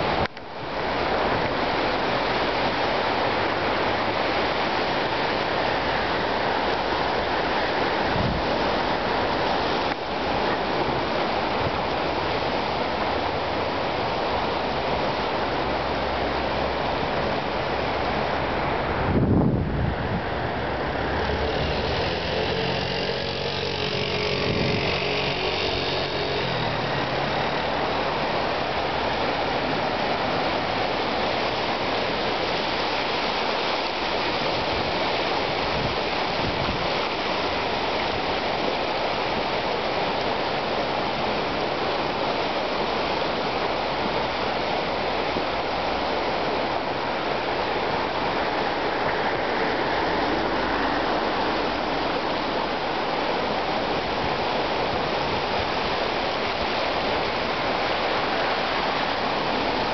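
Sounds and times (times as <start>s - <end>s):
river rushing: 0.0s - 59.9s
vehicle engine passing: 19.9s - 29.6s.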